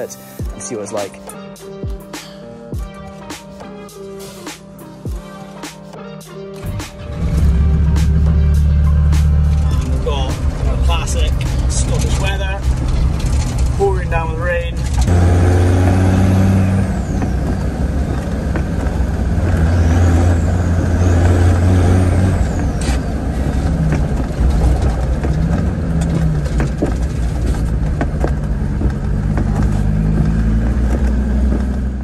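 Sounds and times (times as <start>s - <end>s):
diesel engine running: 6.6s - 32.0s.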